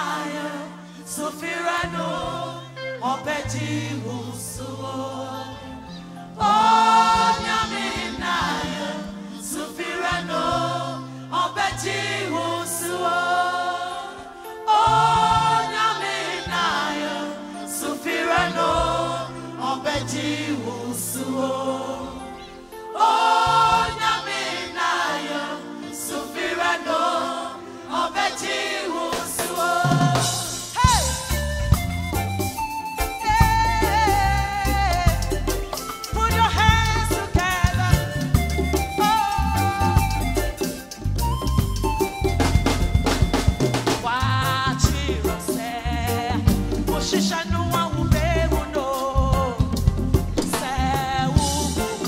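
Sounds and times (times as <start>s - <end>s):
woman singing lead: 0.0s - 24.2s, 27.9s - 32.2s, 33.0s - 41.0s, 43.8s - 52.0s
band with keyboards and bass: 0.0s - 27.3s, 27.9s - 52.0s
backing singers: 6.4s - 31.4s, 36.2s - 41.3s.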